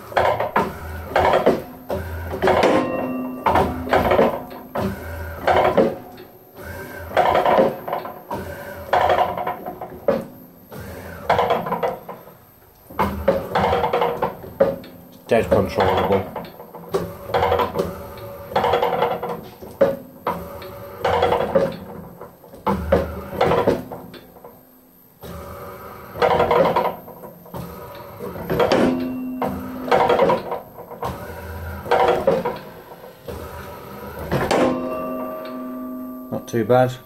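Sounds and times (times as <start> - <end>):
hammer arm clunks: 34.2 - 36.4.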